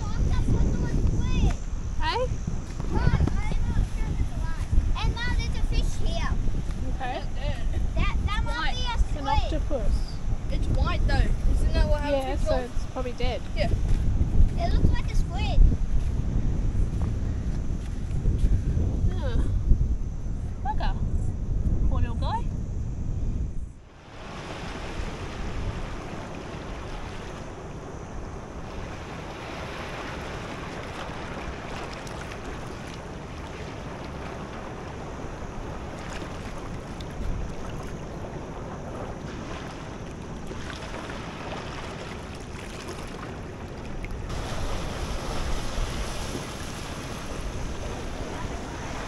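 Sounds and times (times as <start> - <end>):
seawater washing over sand: 0.0 - 7.3, 24.0 - 49.0
wind buffeting microphone: 0.0 - 49.0.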